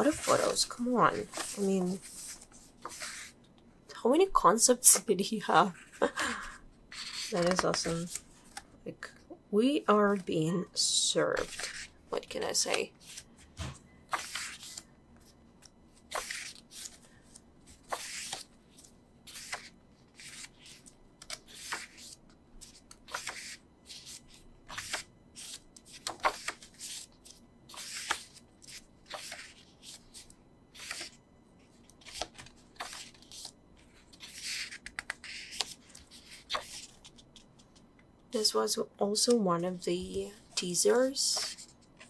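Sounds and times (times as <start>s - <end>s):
photo book pages turning: 0.0s - 3.4s, 6.9s - 8.7s, 11.4s - 31.2s, 31.8s - 37.9s, 41.0s - 42.0s.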